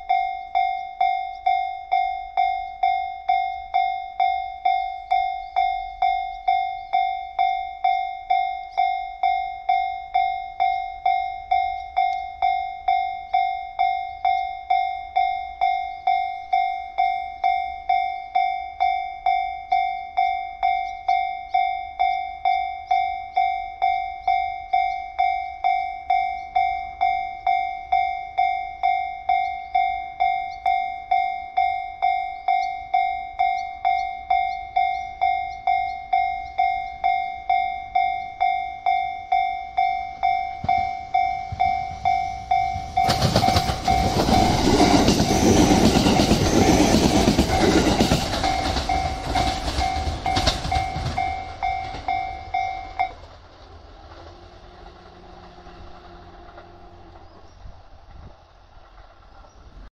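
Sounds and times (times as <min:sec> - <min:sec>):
level crossing electronic bell: 0:00.0 - 0:44.8
electric train passing: 0:00.0 - 0:59.9
wheels clattering on rails: 0:29.3 - 0:59.9.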